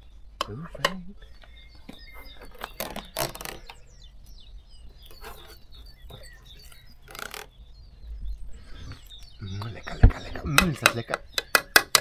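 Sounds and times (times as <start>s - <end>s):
small birds chirping: 0.0s - 12.0s.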